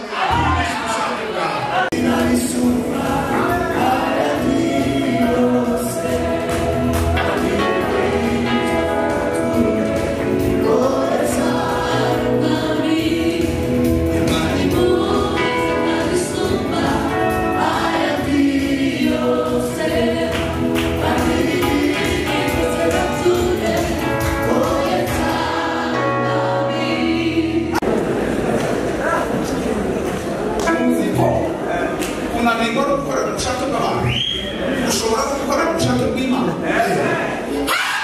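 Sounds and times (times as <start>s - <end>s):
choir singing gospel music: 0.0s - 29.0s
instrumental accompaniment with beat: 2.0s - 25.7s.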